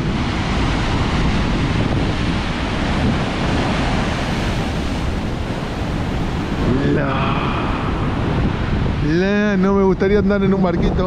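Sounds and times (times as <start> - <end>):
waves crashing over rocks: 0.0 - 11.0
wind blowing across microphone: 0.0 - 11.0.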